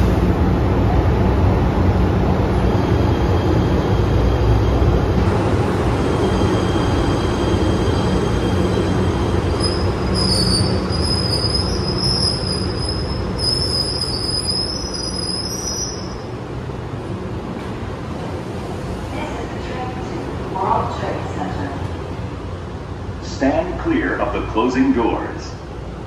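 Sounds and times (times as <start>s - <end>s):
train wheels rumbling on rail: 0.0s - 23.2s
high wavering wheel squeal: 6.0s - 16.3s.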